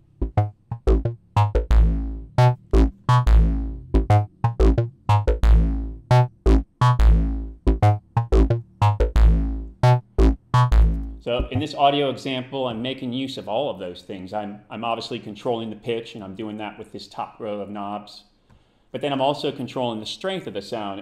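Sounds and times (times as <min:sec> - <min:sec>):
synth notes sequence: 0:00.0 - 0:11.8
deep bass synth notes: 0:00.0 - 0:11.9.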